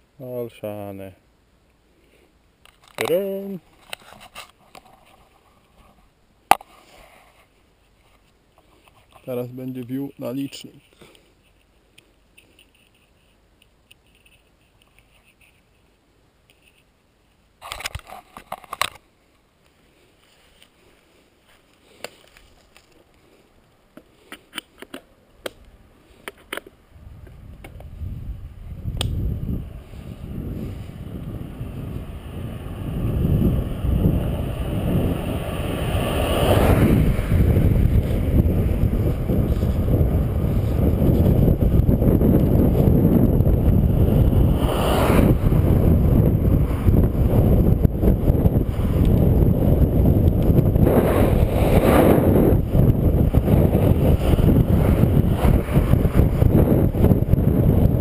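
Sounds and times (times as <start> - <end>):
wind on microphone: 26.9 - 58.0.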